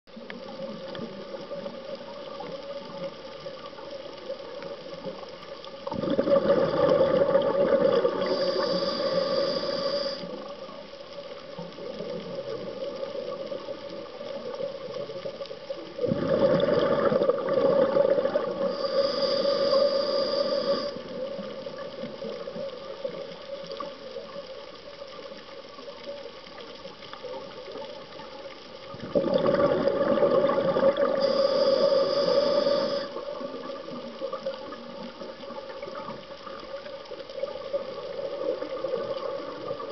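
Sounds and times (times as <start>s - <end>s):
steady underwater hum: 0.1s - 39.9s
scuba exhaled bubbles rushing: 5.9s - 10.2s, 16.0s - 19.3s, 28.9s - 36.1s.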